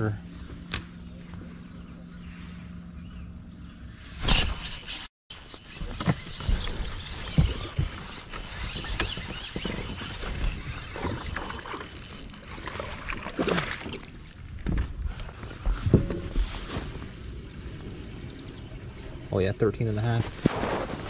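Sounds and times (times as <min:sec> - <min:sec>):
fishing reel cranking: 0:04.3 - 0:12.9
fish splashing in water: 0:05.6 - 0:14.5.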